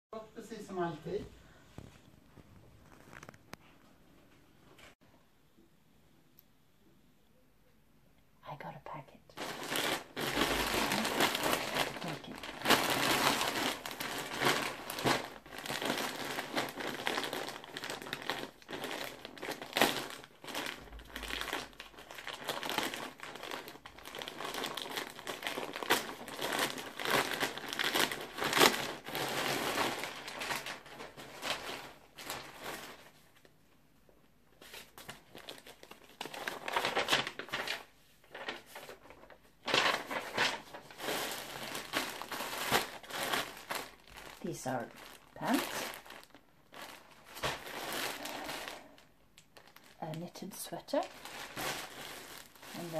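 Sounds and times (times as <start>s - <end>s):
plastic packaging crinkling: 1.8s - 3.8s, 9.4s - 33.6s, 34.5s - 52.9s.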